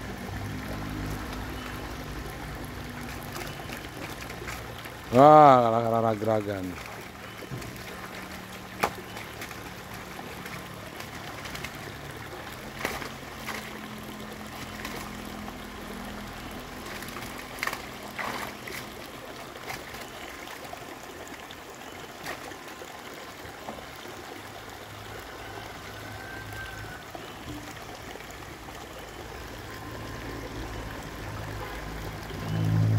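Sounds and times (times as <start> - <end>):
feet in shallow muddy water: 0.0 - 32.9
water trickling into pond: 0.0 - 32.9
net splashing: 0.4 - 22.7.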